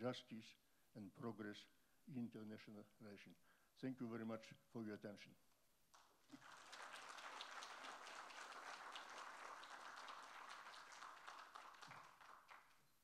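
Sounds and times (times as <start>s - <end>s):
audience applauding: 6.0s - 12.9s.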